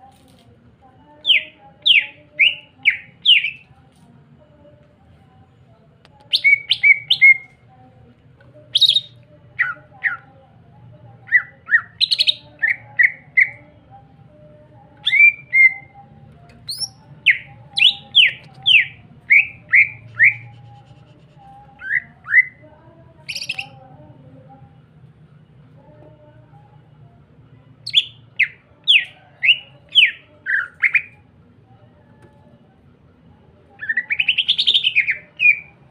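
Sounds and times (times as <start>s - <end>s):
bird whistling song: 1.2s - 3.6s, 6.3s - 7.6s, 8.7s - 10.2s, 11.3s - 13.6s, 16.7s - 20.5s, 21.8s - 22.6s, 23.3s - 23.8s, 27.8s - 31.1s, 33.8s - 35.7s.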